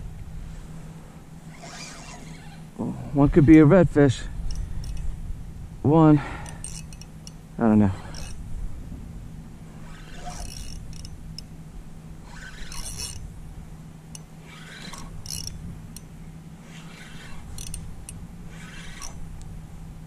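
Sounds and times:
fishing reel whirring: 0:01.4 - 0:02.7, 0:04.4 - 0:05.1, 0:06.4 - 0:08.5, 0:09.7 - 0:13.4, 0:14.1 - 0:19.4
reel clicking: 0:01.5 - 0:02.6, 0:04.4 - 0:05.1, 0:06.4 - 0:07.4, 0:08.0 - 0:08.4, 0:09.8 - 0:11.5, 0:12.2 - 0:13.3, 0:14.1 - 0:19.4.

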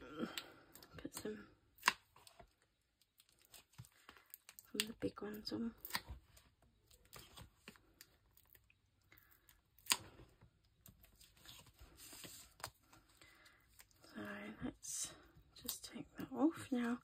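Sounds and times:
paper rustling: 0:10.9 - 0:13.6.

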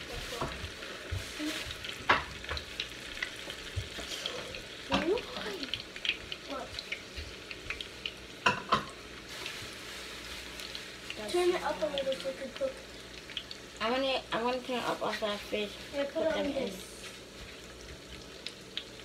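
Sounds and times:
sausages sizzling in a pan: 0:00.0 - 0:19.0.

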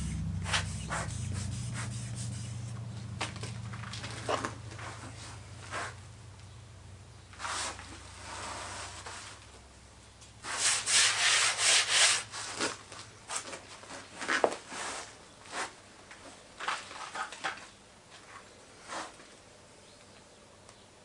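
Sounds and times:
hand sweeping sand on board: 0:07.4 - 0:09.4, 0:10.4 - 0:12.6.

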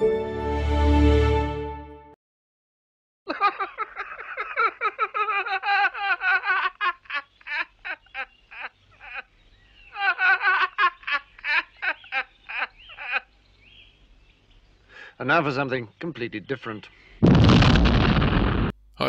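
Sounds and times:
man laughing high-pitched: 0:03.3 - 0:09.3, 0:09.9 - 0:13.3.

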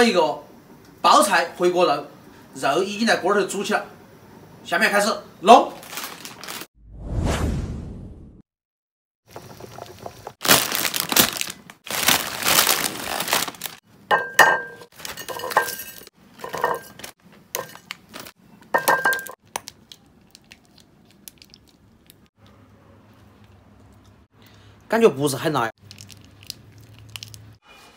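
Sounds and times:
plastic packets crinkling: 0:05.7 - 0:06.7, 0:10.4 - 0:13.8
noodle blocks clinking on plate: 0:14.1 - 0:19.4.

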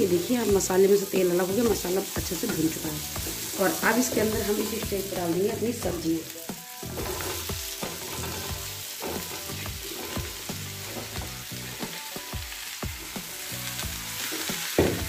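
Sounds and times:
oil sizzling in a pan: 0:00.0 - 0:15.0
pumpkin pieces knocking in pan: 0:14.3 - 0:15.0.

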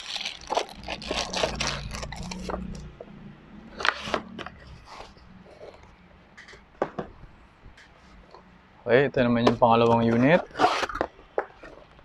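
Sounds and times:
plastic bag crinkling: 0:00.0 - 0:02.9.

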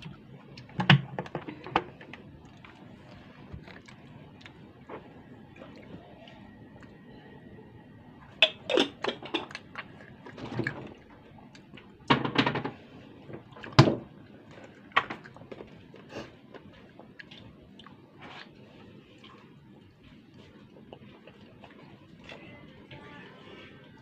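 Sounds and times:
wet lip smacks and chewing: 0:02.4 - 0:07.0, 0:14.7 - 0:18.6.

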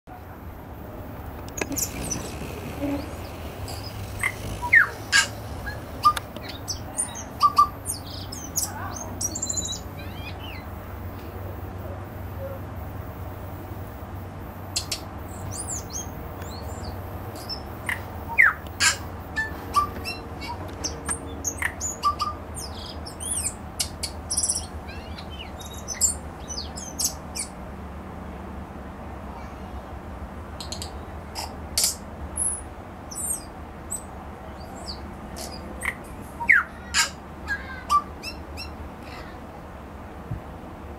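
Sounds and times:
bird singing with clicks and whistles: 0:01.5 - 0:10.6, 0:21.5 - 0:27.5.

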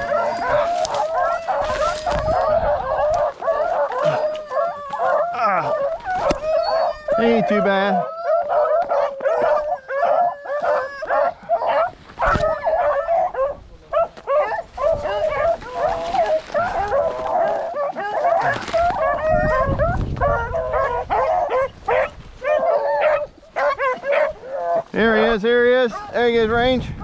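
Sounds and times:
brush scraping microphone: 0:00.0 - 0:02.8
dogs barking and yipping: 0:00.0 - 0:26.4.

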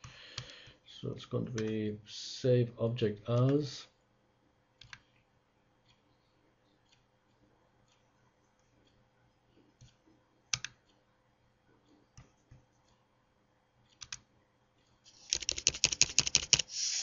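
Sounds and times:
keyboard typing: 0:10.5 - 0:10.8, 0:13.9 - 0:14.2, 0:15.1 - 0:17.0.

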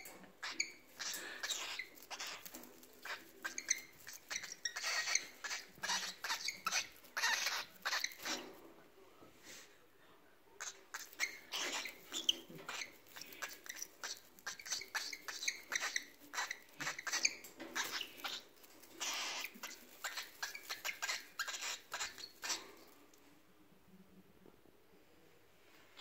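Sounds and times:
bird squeaking: 0:00.0 - 0:08.5, 0:10.6 - 0:22.8
bird tearing grass nest: 0:01.6 - 0:08.5.

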